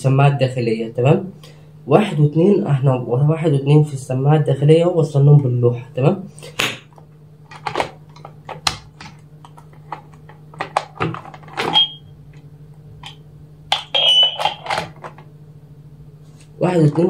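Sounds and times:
low electrical hum: 0.0 - 17.0
intercom handset being handled: 13.0 - 15.3.

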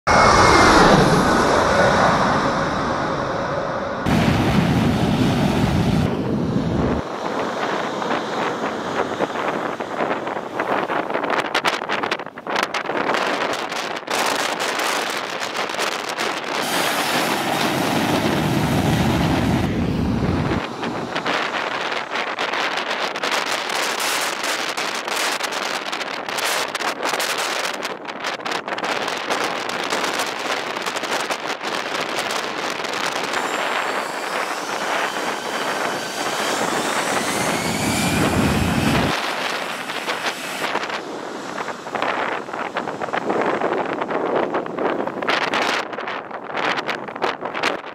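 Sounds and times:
jet engines roaring: 0.0 - 47.9
heavy low rumble: 0.1 - 11.4, 16.2 - 24.4, 30.7 - 45.6
wind buffeting microphone: 0.1 - 47.9.

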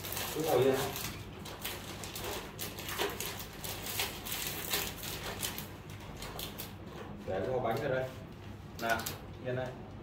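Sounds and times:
plastic packaging crackling: 0.0 - 6.8.

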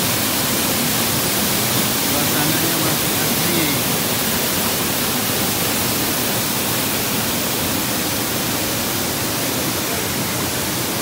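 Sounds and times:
waterfall rushing over rock: 0.0 - 11.0.

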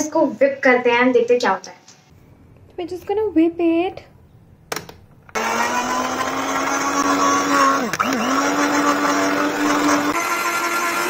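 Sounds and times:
electric hand mixer running: 5.3 - 11.0.

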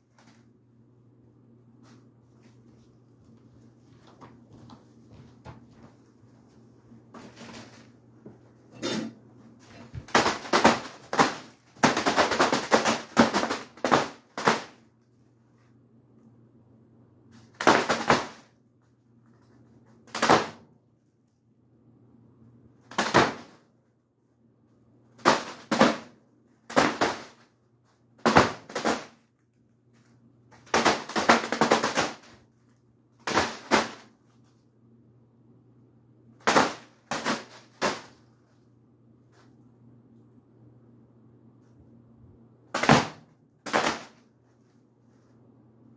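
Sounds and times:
ceiling fan humming: 0.0 - 45.9
fan blades smacking balloon: 7.0 - 14.9, 17.3 - 18.6, 20.0 - 20.7, 22.8 - 23.7, 25.1 - 29.3, 30.5 - 32.5, 33.2 - 34.4, 36.4 - 38.5, 42.7 - 44.6.

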